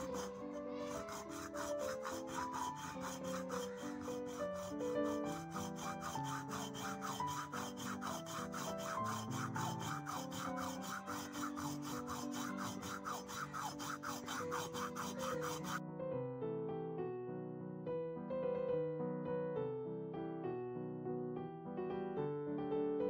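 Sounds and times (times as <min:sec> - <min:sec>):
hacksaw cutting coconut husk: 0:00.0 - 0:15.8.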